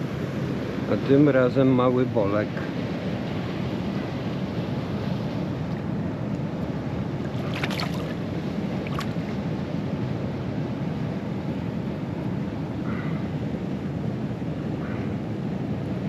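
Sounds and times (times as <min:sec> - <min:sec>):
moving water: 0:02.1 - 0:09.7.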